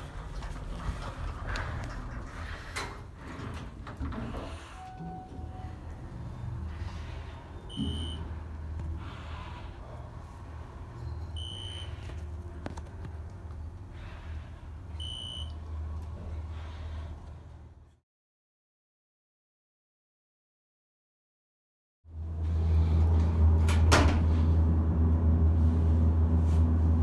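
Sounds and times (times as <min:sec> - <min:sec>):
elevator car humming: 0:00.0 - 0:17.7
short high beeps: 0:07.7 - 0:08.2, 0:11.4 - 0:12.0, 0:15.0 - 0:15.5.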